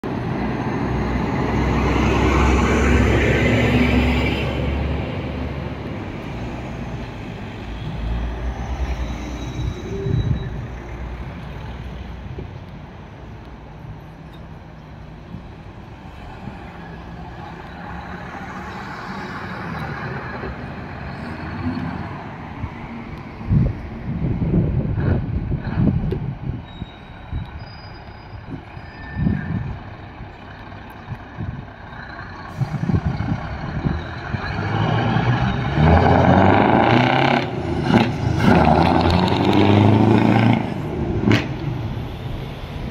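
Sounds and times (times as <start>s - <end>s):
diesel truck engine: 0.0s - 42.9s
truck engine accelerating past: 31.7s - 42.9s.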